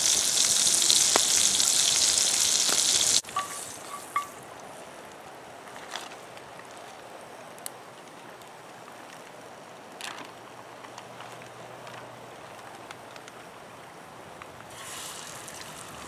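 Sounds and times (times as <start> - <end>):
brook running over stones: 0.0 - 5.0, 14.7 - 16.0.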